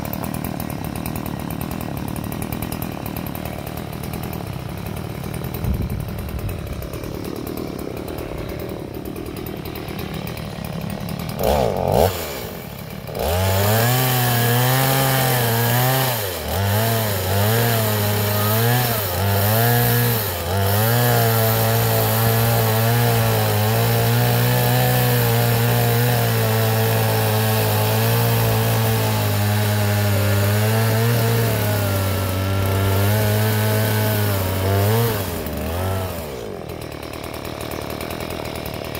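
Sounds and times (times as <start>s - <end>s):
chainsaw cutting wood: 0.0s - 38.9s.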